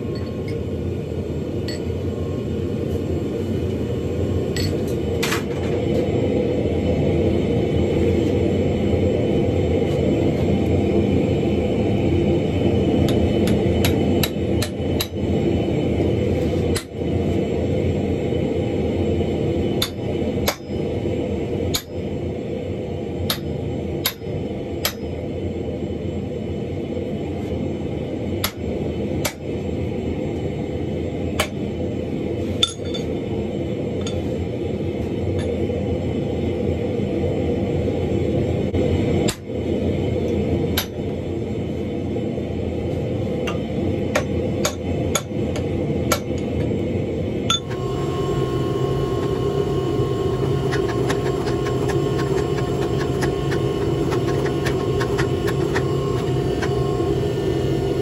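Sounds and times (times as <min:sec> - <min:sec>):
low rumble: 0:00.0 - 0:32.5, 0:33.2 - 0:58.0
hammer striking metal on anvil: 0:23.3 - 0:25.1.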